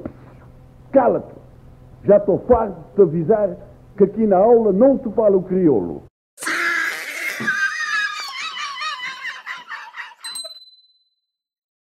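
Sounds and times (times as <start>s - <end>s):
notification bell ding: 10.3s - 11.0s.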